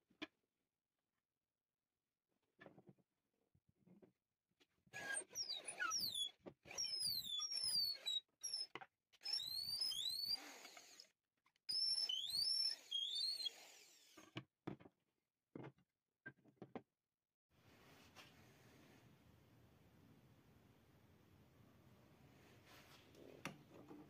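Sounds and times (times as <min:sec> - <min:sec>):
drill bit squealing against wood: 0:05.0 - 0:11.1, 0:11.7 - 0:14.4.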